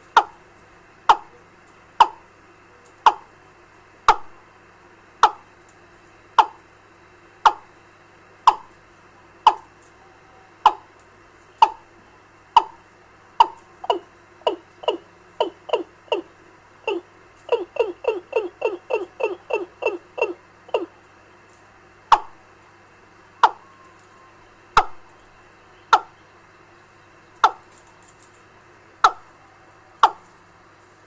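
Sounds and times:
faint electrical hum: 0.0 - 31.0
bird call chirps from loudspeaker: 16.9 - 20.9.

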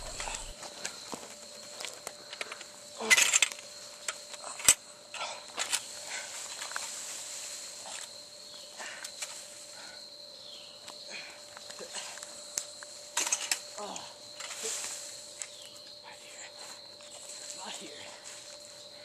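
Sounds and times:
high-pitched whine: 0.0 - 0.5
rustling and clicks of movement: 0.0 - 4.8, 5.4 - 9.8, 10.8 - 15.9.

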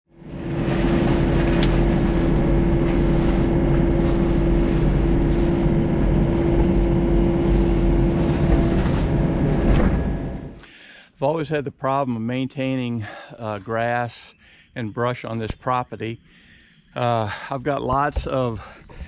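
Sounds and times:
mini excavator engine drone: 0.1 - 10.6.

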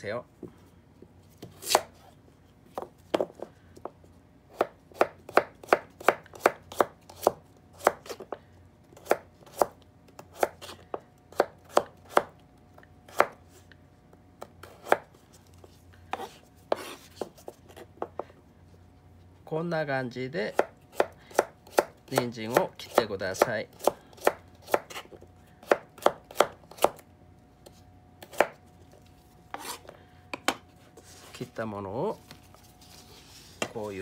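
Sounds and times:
knife chopping carrot on board: 4.5 - 8.4, 9.0 - 12.3, 14.4 - 15.1, 20.5 - 27.0, 28.2 - 28.6.

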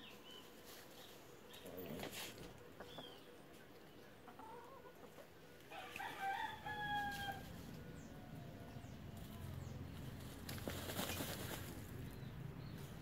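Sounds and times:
rooster crowing: 5.7 - 8.7.

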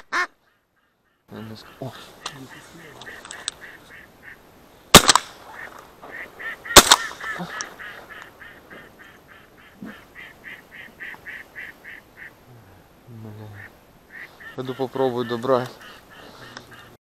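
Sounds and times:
shotgun shots: 4.9 - 8.1
duck quacking: 5.6 - 12.4, 13.5 - 17.0.

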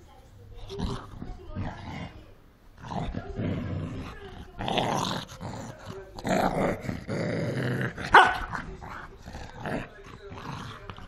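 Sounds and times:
dog growling: 0.6 - 11.0
dog yapping: 8.1 - 8.5.

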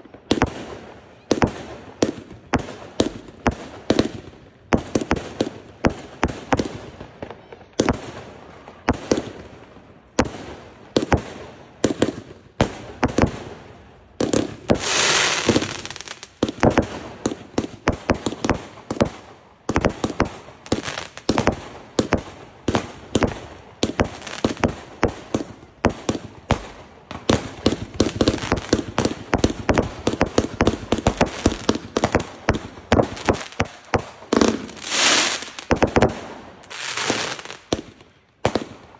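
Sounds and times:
fireworks bangs: 0.0 - 38.9
fireworks hissing: 14.3 - 16.3.

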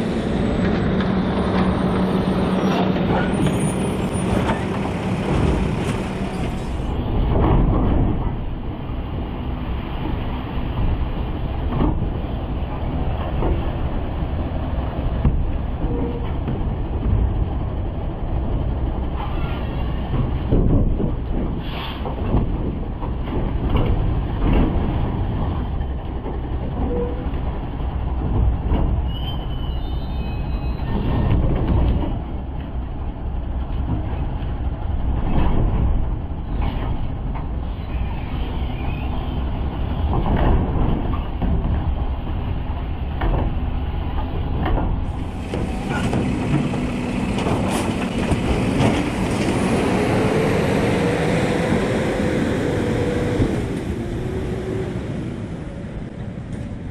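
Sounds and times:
garbage truck diesel engine: 0.0 - 56.9
knocks and clanks from truck hopper: 0.1 - 8.7, 10.0 - 12.2, 15.2 - 17.6, 19.1 - 29.1, 30.8 - 32.8, 33.5 - 37.6, 39.6 - 49.9.

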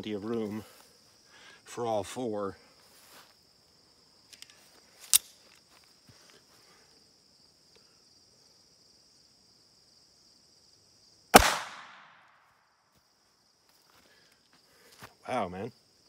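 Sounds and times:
insects droning: 0.0 - 16.0
pistol shot: 11.3 - 12.3.

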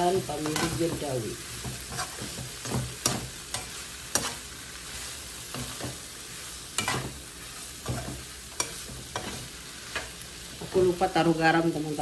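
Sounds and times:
frying oil sizzling: 0.0 - 12.0
metal spatula scraping a wok: 1.6 - 10.2.

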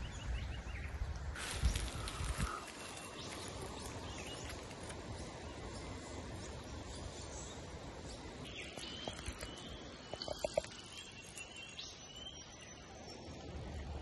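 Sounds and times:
outdoor background noise: 0.0 - 14.0
faint bird chirps: 8.2 - 13.5.

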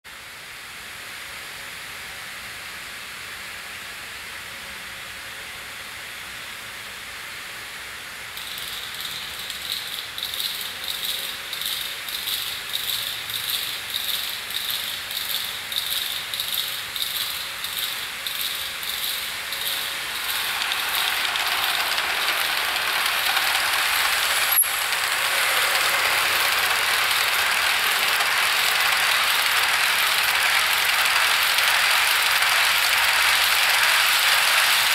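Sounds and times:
model train rolling on track: 8.2 - 34.9
rhythmic wheel clicking: 8.4 - 34.9.

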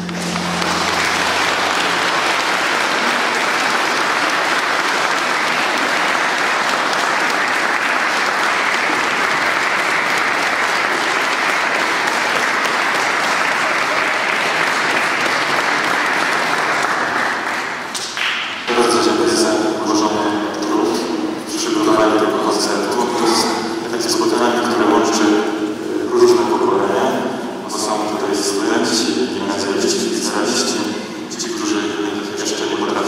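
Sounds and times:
audience applauding: 0.0 - 25.8.

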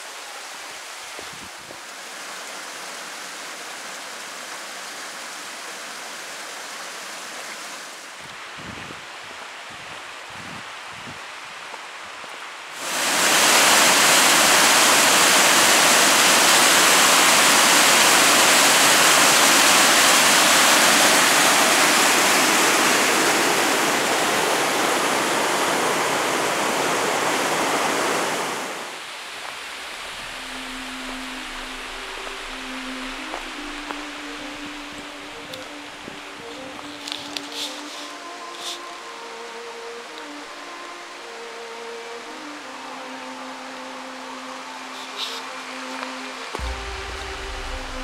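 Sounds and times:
water rushing over rocks: 12.7 - 40.4, 44.8 - 48.0.

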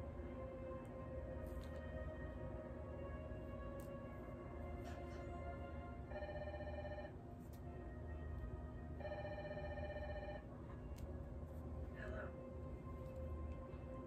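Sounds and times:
telephone ringing: 6.1 - 7.2, 9.0 - 10.5.

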